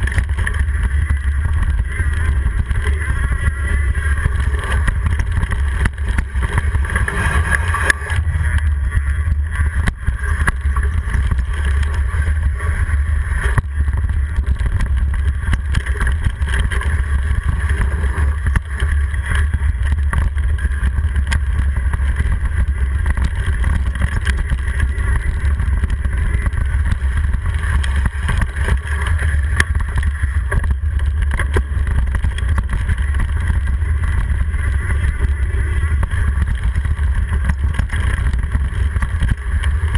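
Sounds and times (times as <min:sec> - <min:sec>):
bike knocks and rattles: 0:00.0 - 0:39.9
tyres on dirt: 0:00.0 - 0:39.9.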